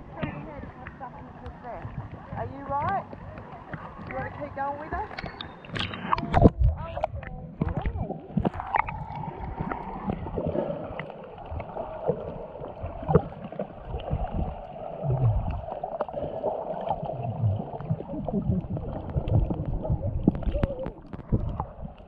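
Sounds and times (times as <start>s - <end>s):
low underwater thumps: 0.0s - 15.8s, 16.9s - 22.0s
water gurgling underwater: 0.0s - 22.0s
small clicks and crackles: 18.9s - 22.0s.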